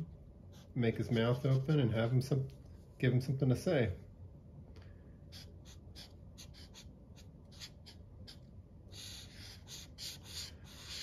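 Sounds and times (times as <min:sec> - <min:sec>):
marker writing on paper: 0:05.3 - 0:11.0.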